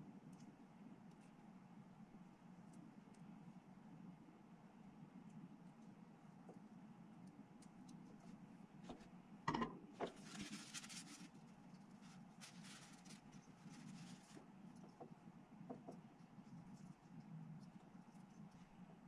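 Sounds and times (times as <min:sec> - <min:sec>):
faint low hum: 0:00.0 - 0:19.0
scratchy rubbing of plastic parts: 0:10.1 - 0:14.9.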